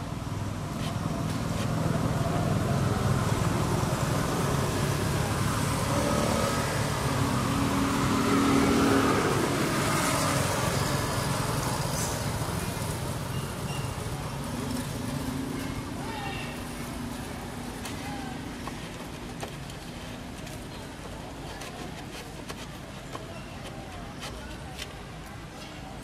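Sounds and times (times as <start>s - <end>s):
steady traffic rumble: 0.0s - 26.0s
motor vehicle passing: 0.8s - 20.0s.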